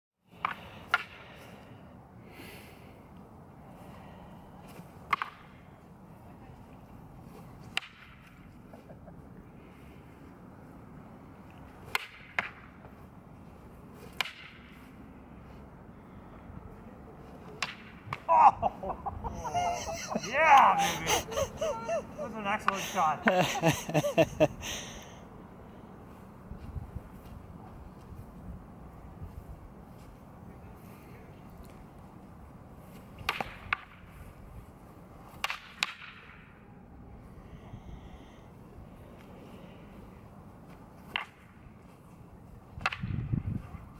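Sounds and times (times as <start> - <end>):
wooden staffs clacking: 17.4 - 18.3.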